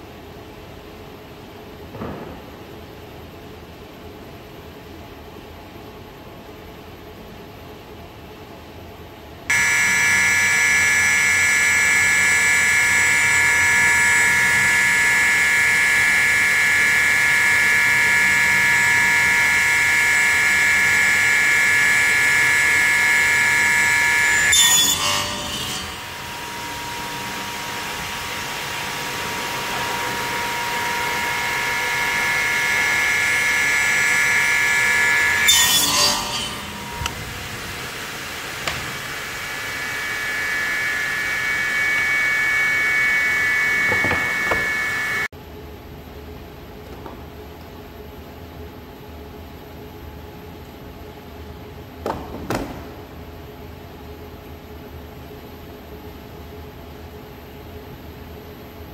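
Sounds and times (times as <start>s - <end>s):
saw blade cutting plywood: 9.5s - 37.4s, 38.6s - 45.3s
saw whining: 9.5s - 45.3s.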